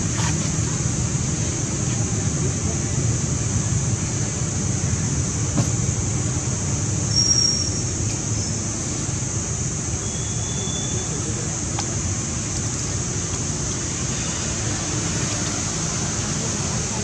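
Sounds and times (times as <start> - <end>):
constant high hiss: 0.0 - 17.0
thin whistle: 7.1 - 8.6, 10.0 - 11.3.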